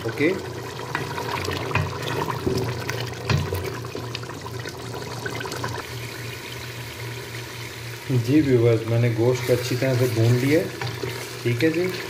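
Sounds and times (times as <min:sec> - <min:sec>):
curry bubbling in a pot: 0:00.0 - 0:12.0
wooden spatula stirring: 0:09.2 - 0:12.0.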